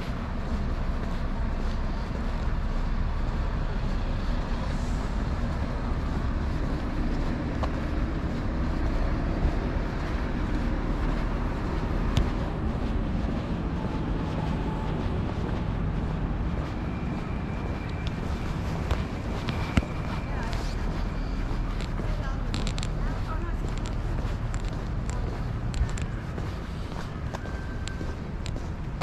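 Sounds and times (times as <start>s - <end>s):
road traffic rumble: 0.0s - 29.0s.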